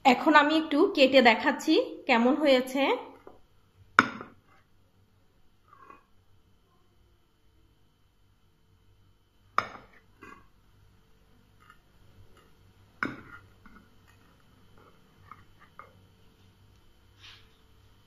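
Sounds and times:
knife tapping and scraping: 0:11.6 - 0:16.0.

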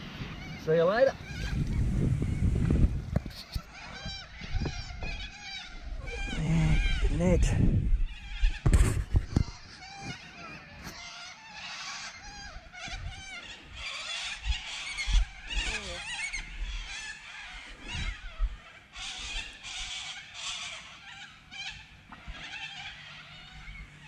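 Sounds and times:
birds chirping and trilling: 0:00.0 - 0:24.0
microphone handling thumps: 0:08.6 - 0:10.2.

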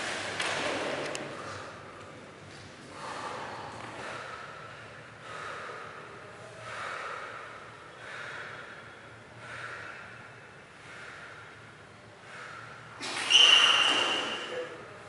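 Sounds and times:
person breathing heavily: 0:01.2 - 0:02.0, 0:02.8 - 0:13.0.

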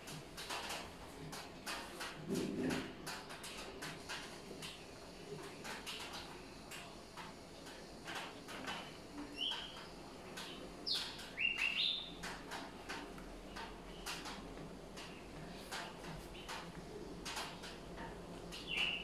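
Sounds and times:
bird chirps: 0:10.8 - 0:12.1, 0:18.7 - 0:19.0.

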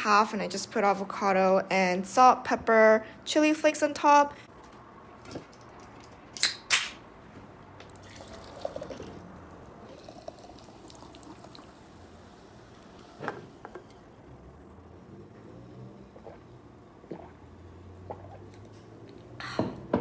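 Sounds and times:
drink can popping open: 0:06.3 - 0:07.0
drink pouring into glass jar: 0:08.0 - 0:11.9
faint fizzing: 0:09.8 - 0:12.4.

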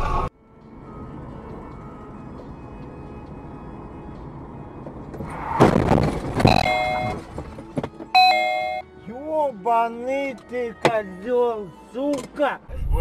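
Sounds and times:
car engine and road noise: 0:00.0 - 0:09.1
car crash: 0:05.0 - 0:08.0.

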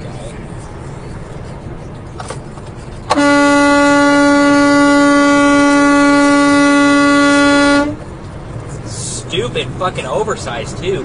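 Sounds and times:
truck cab road noise: 0:00.0 - 0:11.0
truck horn blast: 0:03.1 - 0:08.0.

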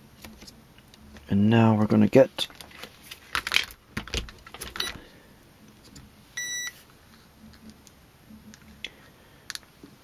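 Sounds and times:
short electronic beep: 0:06.4 - 0:06.8.

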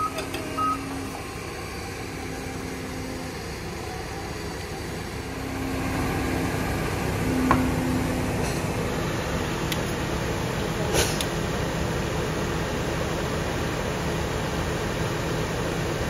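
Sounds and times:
construction machinery engines running: 0:00.0 - 0:16.0.

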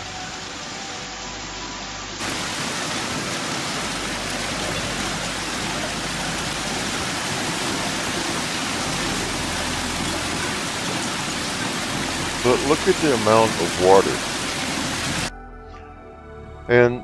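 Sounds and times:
torrential rain pouring: 0:00.0 - 0:15.3.

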